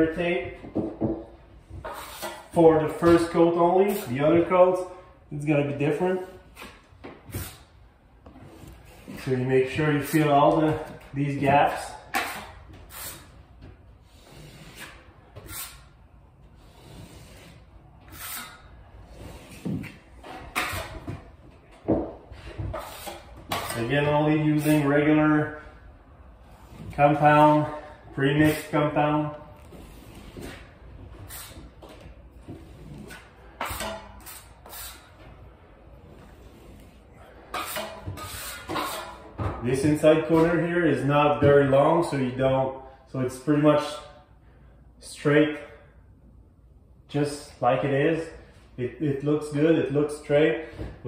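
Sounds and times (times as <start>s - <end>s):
taping knife scraping compound: 1.8s - 2.6s, 12.1s - 13.4s, 14.0s - 16.0s, 16.6s - 19.8s, 22.5s - 25.0s, 32.5s - 35.2s, 36.2s - 39.3s.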